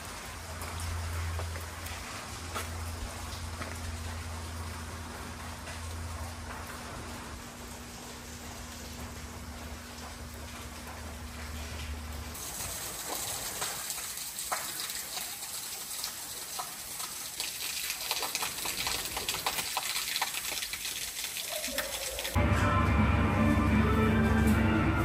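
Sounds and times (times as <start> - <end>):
water running and splashing: 0.0 - 22.4
music: 22.4 - 25.0.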